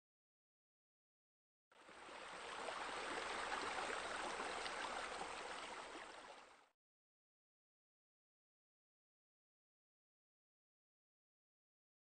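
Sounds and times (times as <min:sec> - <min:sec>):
running water splashing: 0:01.8 - 0:06.6.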